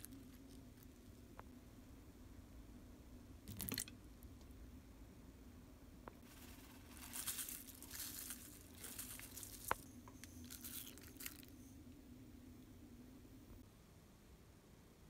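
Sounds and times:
crinkly rustling: 0:00.0 - 0:01.1, 0:06.2 - 0:11.7
low steady hum: 0:00.0 - 0:15.0.

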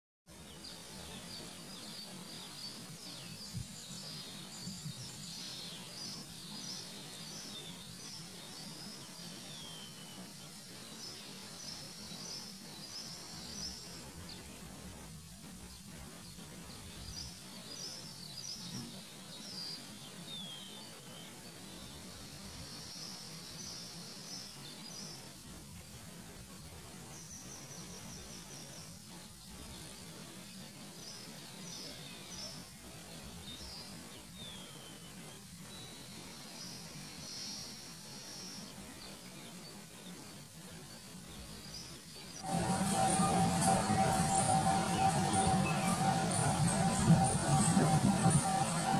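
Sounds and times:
steady background hiss: 0:00.3 - 0:48.9
steady low hum: 0:25.0 - 0:48.9
birds chirping: 0:42.4 - 0:48.9.

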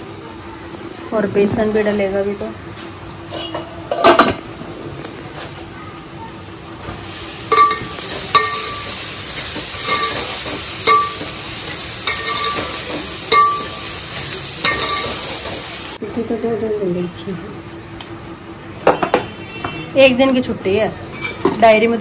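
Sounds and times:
onions sizzling in oil: 0:00.0 - 0:20.9
ladle clinking against pot: 0:07.5 - 0:09.0, 0:09.8 - 0:11.4, 0:12.0 - 0:13.9, 0:14.6 - 0:15.2.

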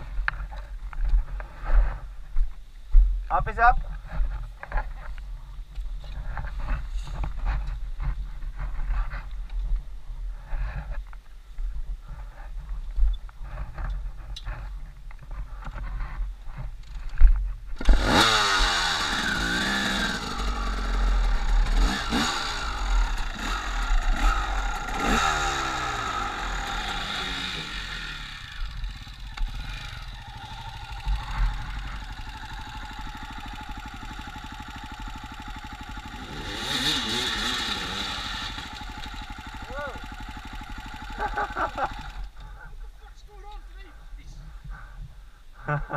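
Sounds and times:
dirt bike engine starting and revving: 0:06.2 - 0:09.3, 0:13.4 - 0:43.6.

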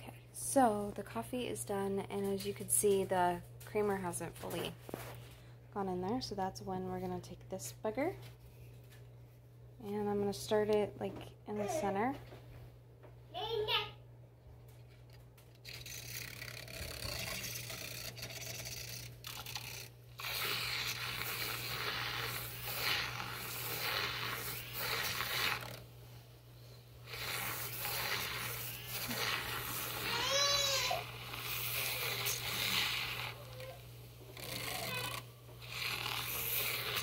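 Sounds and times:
milk frother whisking: 0:15.5 - 0:25.9, 0:27.0 - 0:37.0.

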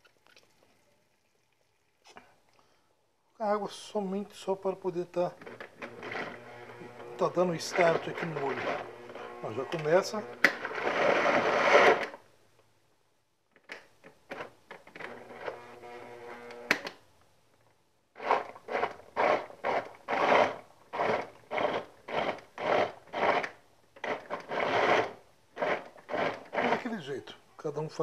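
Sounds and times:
blender motor chopping vegetables: 0:05.4 - 0:12.2, 0:15.0 - 0:16.8, 0:18.2 - 0:27.0
blender clicks: 0:07.1 - 0:12.2.

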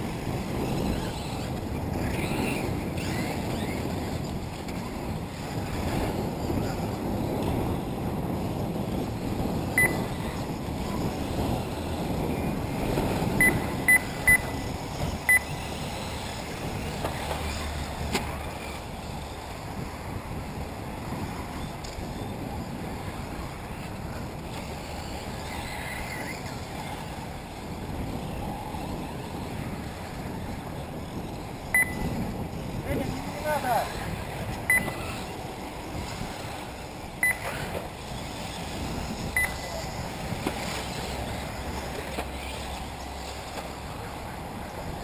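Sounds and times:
electric rc cars running: 0:00.0 - 0:45.0
wind buffeting microphone: 0:00.0 - 0:45.0
short high beeps: 0:09.8 - 0:10.2, 0:13.4 - 0:14.7, 0:15.3 - 0:15.5, 0:31.8 - 0:32.2, 0:34.7 - 0:35.0, 0:37.2 - 0:37.6, 0:39.4 - 0:39.7.

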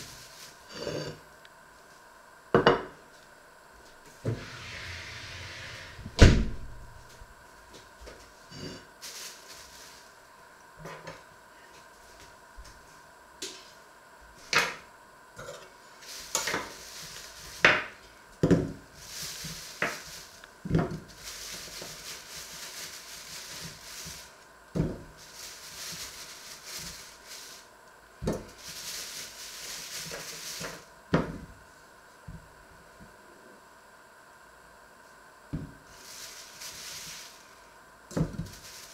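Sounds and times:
plastic bag crinkling: 0:09.0 - 0:10.2, 0:16.0 - 0:18.0, 0:18.9 - 0:24.5, 0:25.2 - 0:27.7, 0:28.3 - 0:30.9, 0:35.9 - 0:38.9.

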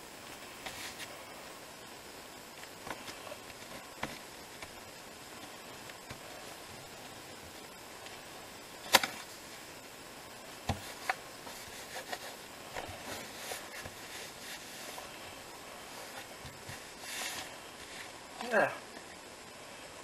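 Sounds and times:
paper rustling: 0:00.6 - 0:01.2, 0:10.7 - 0:15.1, 0:15.9 - 0:18.2
bone folder rubbing on card: 0:10.9 - 0:15.0.

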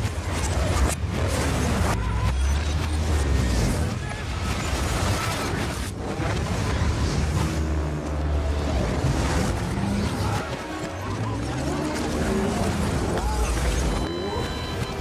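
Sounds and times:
fire roaring: 0:00.0 - 0:14.0
engines roaring: 0:00.0 - 0:15.0.

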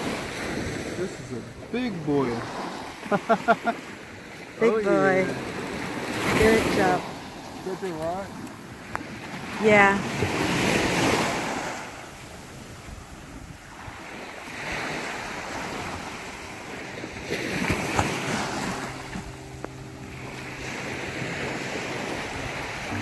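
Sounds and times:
waves washing against rocks: 0:05.1 - 0:19.0
low steady hum: 0:16.6 - 0:23.0.

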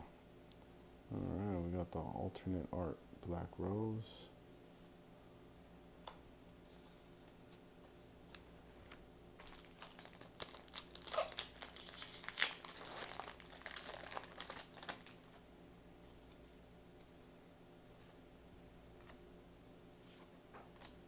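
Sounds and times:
foil wrapper tearing and crinkling: 0:09.4 - 0:15.4.

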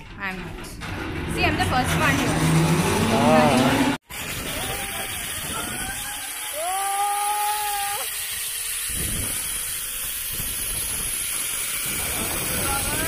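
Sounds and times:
rising trolley whine: 0:00.8 - 0:04.0
zip-line trolley hiss on cable: 0:04.1 - 0:13.0.

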